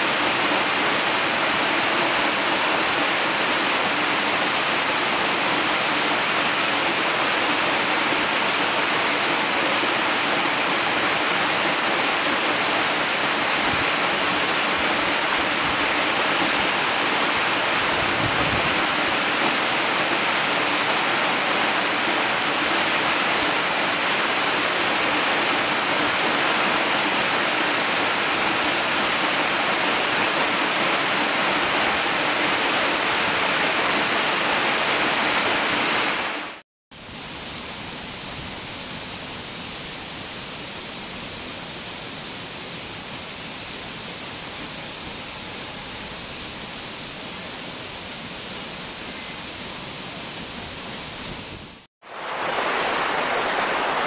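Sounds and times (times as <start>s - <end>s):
waterfall rushing onto rocks: 0.0s - 36.6s, 50.4s - 54.0s.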